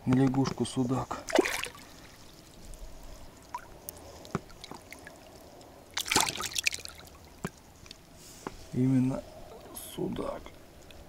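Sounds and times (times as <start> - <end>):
water trickling: 0.9 - 8.1
fish splashing at surface: 1.3 - 2.4, 3.4 - 7.5.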